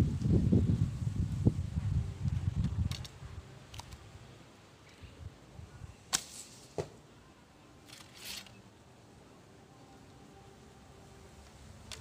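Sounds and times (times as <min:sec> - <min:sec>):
light wind rumble: 0:00.0 - 0:06.1
arrow striking target knock: 0:06.1 - 0:07.0.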